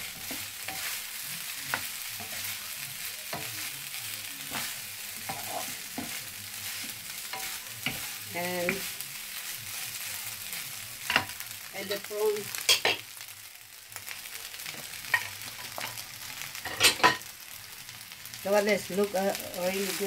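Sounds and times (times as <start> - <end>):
utensils scraping a pan: 0.0 - 1.0, 4.4 - 8.9
rice sizzling in a frying pan: 0.0 - 20.0.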